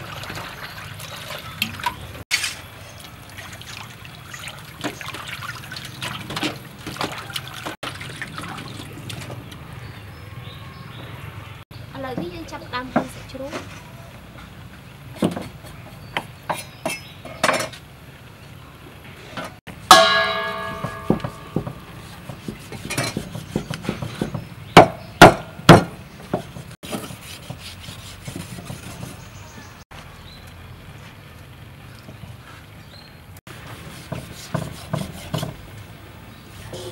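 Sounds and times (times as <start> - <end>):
metallic ringing strike: 19.9 - 21.9
cleaver chopping on wooden block: 20.5 - 27.6.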